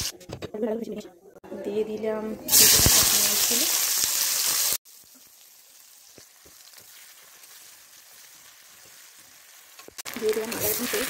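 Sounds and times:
onions sizzling in oil: 2.4 - 11.0.

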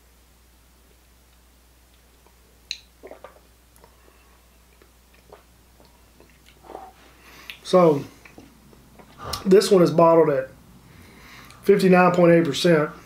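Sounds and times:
lip smacks: 1.3 - 4.0, 4.7 - 7.6, 8.2 - 9.5
small tongue clicks: 1.3 - 4.0
sharp mouth click: 9.0 - 9.5
short breath: 9.1 - 9.5, 10.8 - 11.6.

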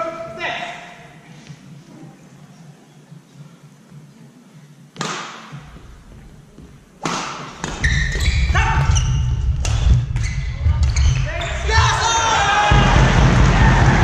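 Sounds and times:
crowd cheering: 11.6 - 14.0.

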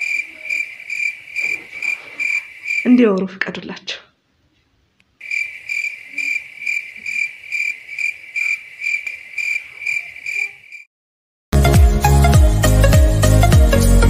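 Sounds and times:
cricket chirping: 0.0 - 3.0, 5.2 - 10.9.

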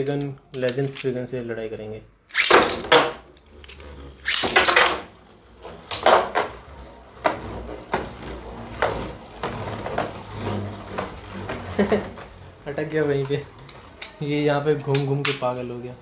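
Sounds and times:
spinning tops launching: 2.3 - 12.6.

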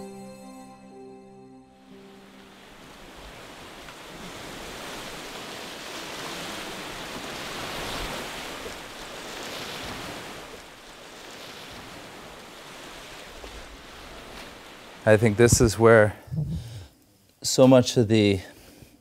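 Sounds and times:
wind: 1.8 - 19.0
small waves washing on shore: 2.1 - 16.9.

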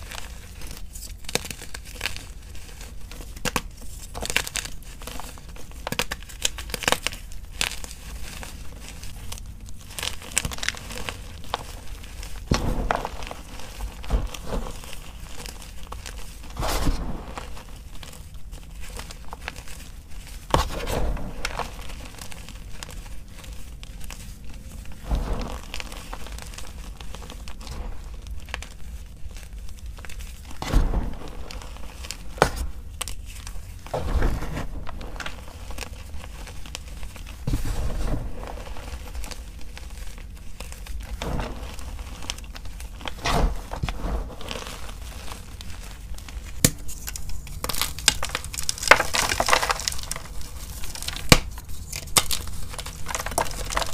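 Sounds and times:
hands crumbling chalk: 0.0 - 30.6, 34.6 - 53.9
sharp crack: 12.4 - 15.5.

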